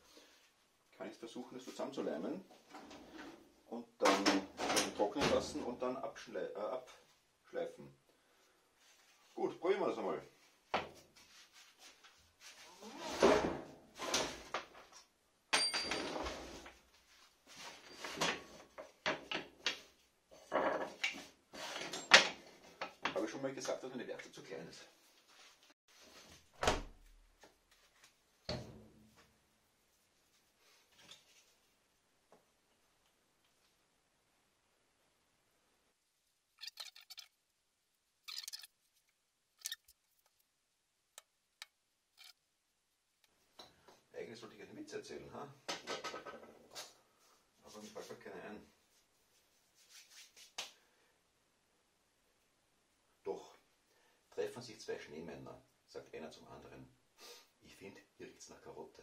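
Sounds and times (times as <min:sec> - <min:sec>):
glue bottle squeezing handling noise: 0:36.5 - 0:37.5, 0:38.2 - 0:40.6, 0:41.2 - 0:42.4.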